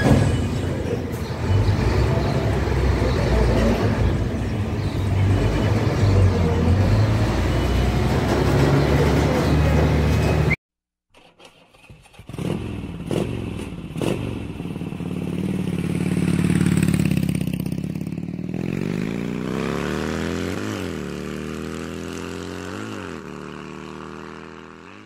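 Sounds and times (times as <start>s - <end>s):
motorcycle engine revving: 11.2s - 25.0s.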